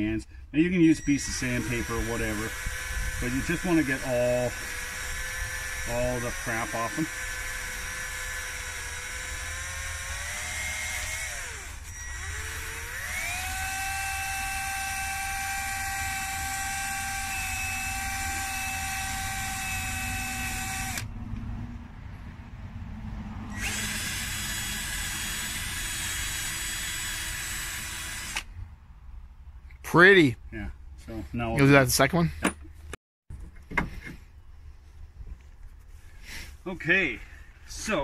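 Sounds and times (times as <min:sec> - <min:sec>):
drill with wire brush whining: 0:00.8 - 0:21.1, 0:23.5 - 0:28.5.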